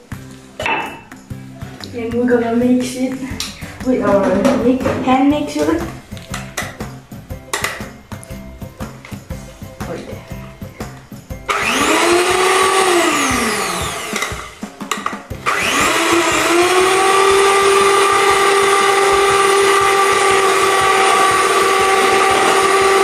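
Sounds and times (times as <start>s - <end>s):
electric hand mixer whirring: 11.4s - 14.8s, 15.4s - 23.0s.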